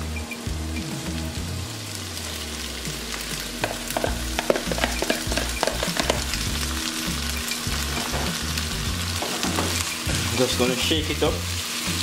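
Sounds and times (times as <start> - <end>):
food sizzling in a frying pan: 0.0 - 12.0
spoon clicking and tapping: 3.6 - 6.2.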